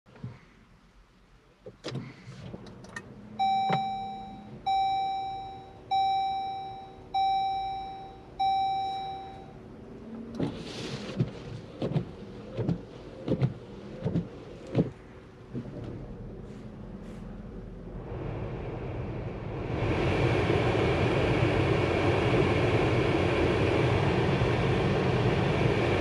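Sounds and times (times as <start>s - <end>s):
steady low hum: 0.1s - 26.0s
bell-like warning chime: 3.4s - 9.5s.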